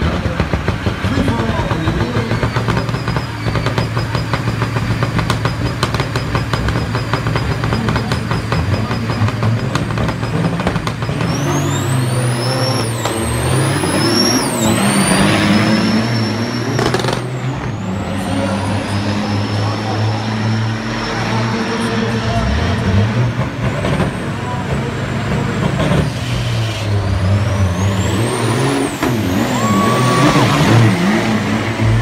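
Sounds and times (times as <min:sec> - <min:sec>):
diesel truck engines revving: 0:00.0 - 0:32.0
turbocharger whistles: 0:01.4 - 0:07.4, 0:10.9 - 0:22.4, 0:26.2 - 0:32.0.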